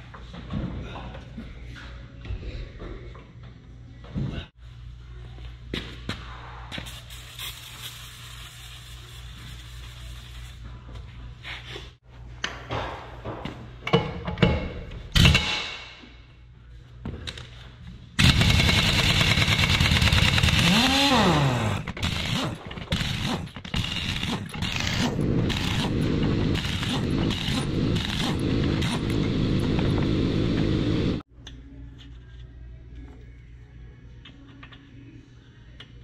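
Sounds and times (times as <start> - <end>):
air impact wrench rattling: 18.2 - 29.2.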